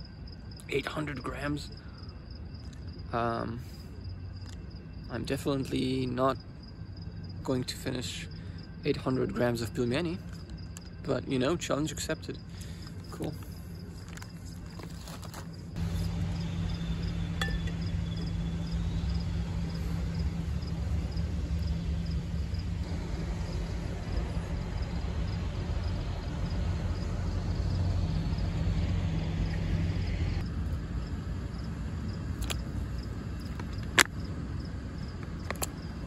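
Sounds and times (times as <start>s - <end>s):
vehicle engine rumbling: 2.9s - 36.0s.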